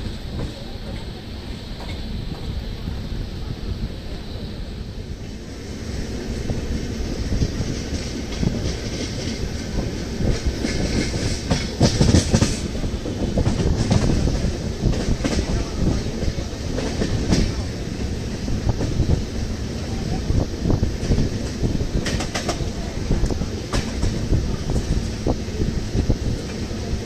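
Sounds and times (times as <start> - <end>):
train wheels clicking over rail joints: 0.0 - 3.0, 5.2 - 27.0.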